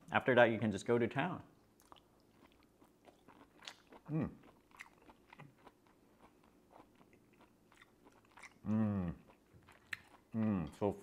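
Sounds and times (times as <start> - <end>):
person chewing wetly: 1.6 - 10.9
person humming mm: 4.1 - 4.3, 8.6 - 9.2, 10.4 - 10.7.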